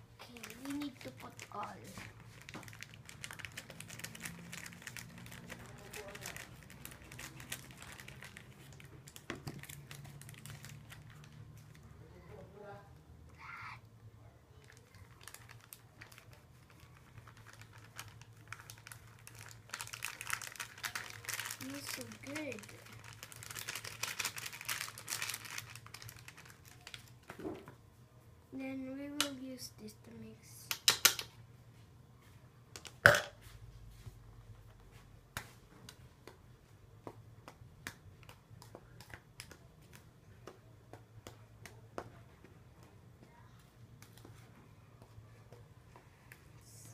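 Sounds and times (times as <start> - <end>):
plastic bag crinkling: 0.2 - 11.8, 14.6 - 27.3.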